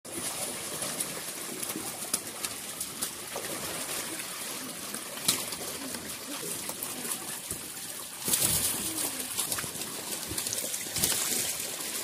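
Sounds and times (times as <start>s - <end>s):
fish splashing in water: 0.1s - 12.0s
sharp water slaps: 0.1s - 12.0s.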